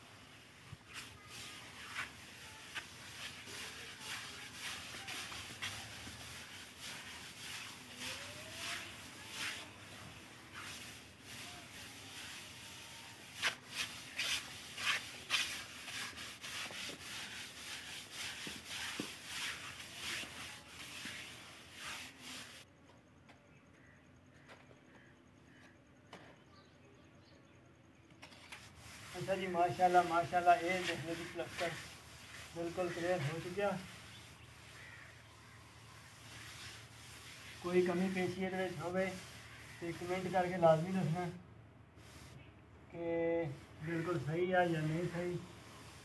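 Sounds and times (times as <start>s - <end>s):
float scraping on plaster: 0.8s - 22.6s, 28.2s - 35.2s, 36.0s - 41.2s.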